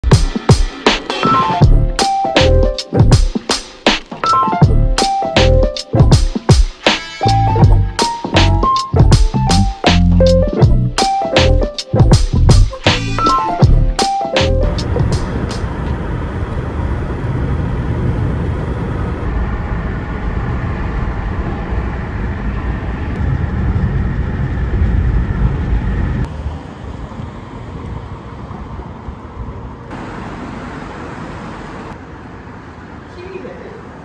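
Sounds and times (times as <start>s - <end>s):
car cabin road noise: 14.6s - 34.0s.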